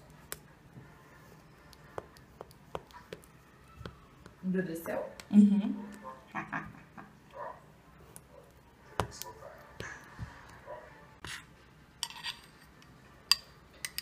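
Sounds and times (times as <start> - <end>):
cutlery scraping and clinking: 11.2 - 12.8.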